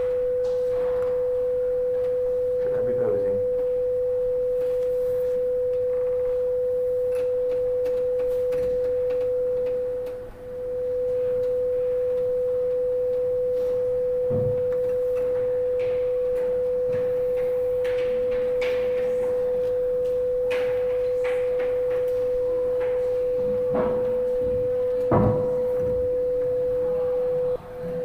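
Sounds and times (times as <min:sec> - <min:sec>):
steady pure electronic tone: 0:00.0 - 0:28.0.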